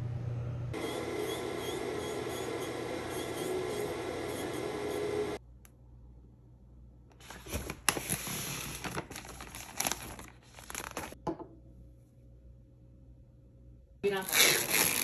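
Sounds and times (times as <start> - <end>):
paper bag rustling: 7.2 - 11.2.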